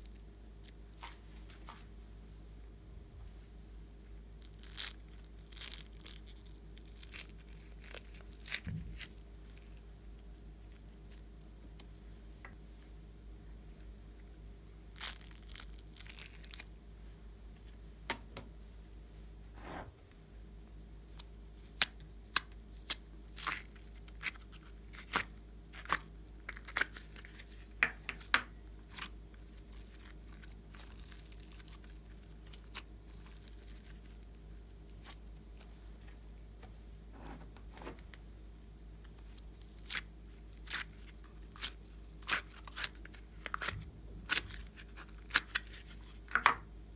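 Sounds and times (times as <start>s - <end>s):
plastic and slime crackling: 4.4s - 12.0s, 14.9s - 16.7s, 21.1s - 38.2s, 39.1s - 46.6s.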